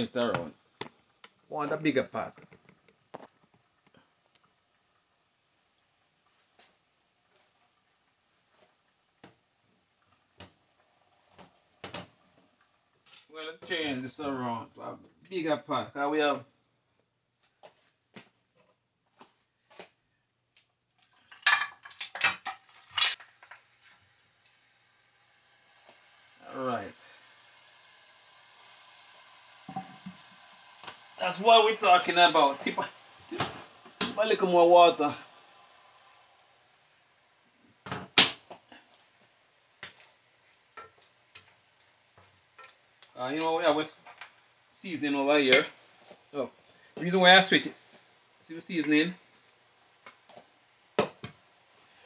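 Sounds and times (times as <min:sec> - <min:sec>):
metal cookware clattering: 0:21.2 - 0:23.6
kettle clunking on stove: 0:29.7 - 0:30.2.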